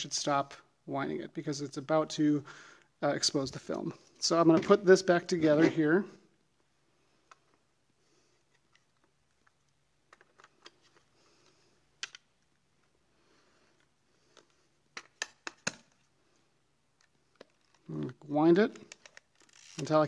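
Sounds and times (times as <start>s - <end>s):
film back clicks and snaps: 11.9s - 12.9s, 13.8s - 16.1s, 16.9s - 20.0s.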